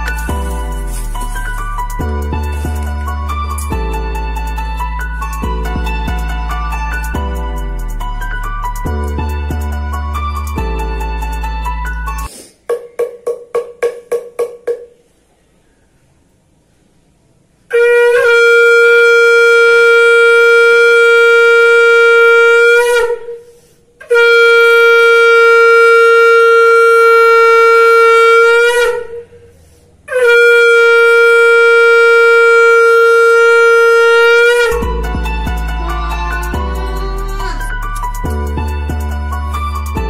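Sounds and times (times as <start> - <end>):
conch shell blowing: 0.0 - 7.2, 17.7 - 40.0
quiet music: 0.0 - 23.4, 24.0 - 40.0.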